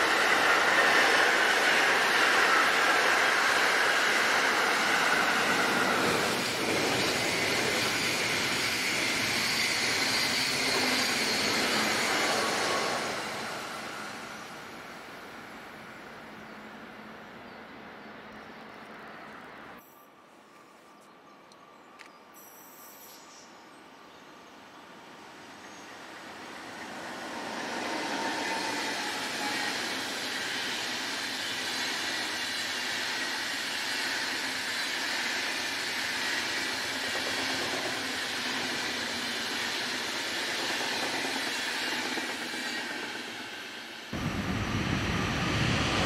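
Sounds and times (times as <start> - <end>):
train wheels on rails: 0.0 - 16.0, 25.3 - 46.0.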